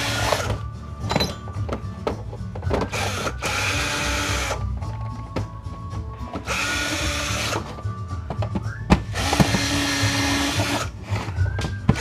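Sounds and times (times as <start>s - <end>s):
cordless drill whining: 0.0s - 0.6s, 2.8s - 4.6s, 6.4s - 7.7s, 8.9s - 12.0s.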